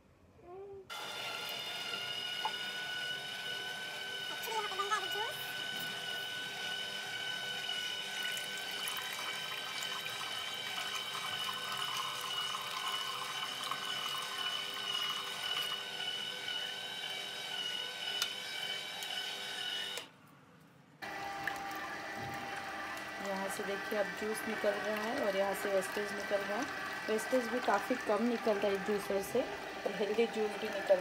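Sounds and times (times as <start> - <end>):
juicer motor whining: 0.9 - 20.2, 21.0 - 31.0
juice pouring: 5.1 - 16.8, 21.0 - 31.0.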